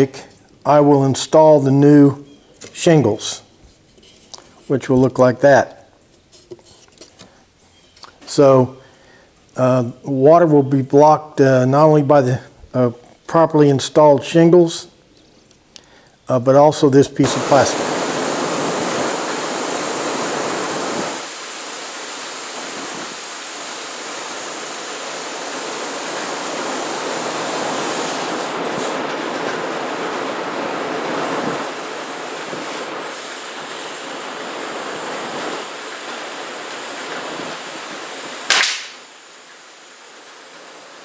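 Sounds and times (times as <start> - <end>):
drum fan rushing air: 17.2 - 39.2
sharp snap: 38.5 - 39.1.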